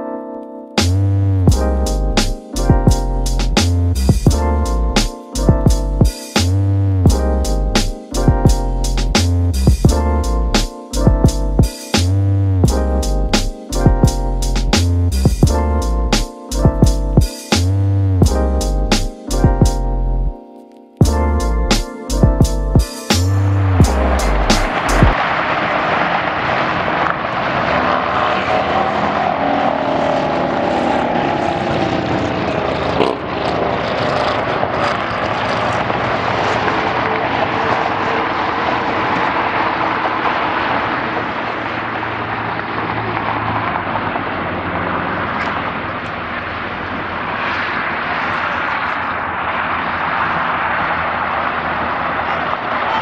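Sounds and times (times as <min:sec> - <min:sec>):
wavering engine hum: 0:00.8 - 0:20.4, 0:21.0 - 0:53.0
jet engines roaring: 0:22.8 - 0:53.0.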